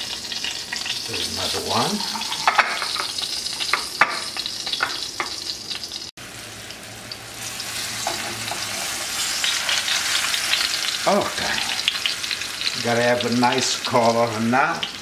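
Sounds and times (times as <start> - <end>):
meat frying in oil: 0.0 - 15.0.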